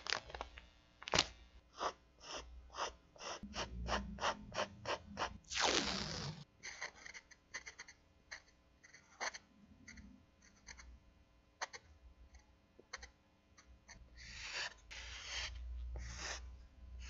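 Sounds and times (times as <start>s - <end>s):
marker scratching on paper: 13.9s - 16.5s.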